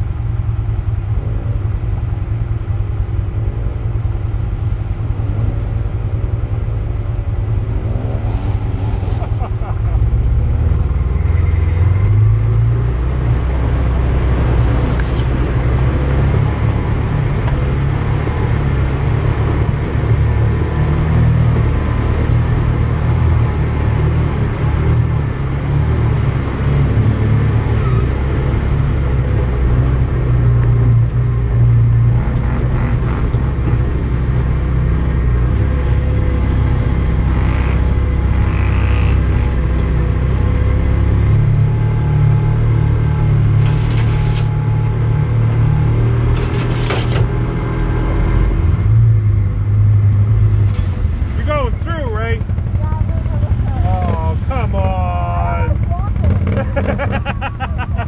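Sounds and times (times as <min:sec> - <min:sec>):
off-road vehicle engine: 0:00.0 - 0:58.0.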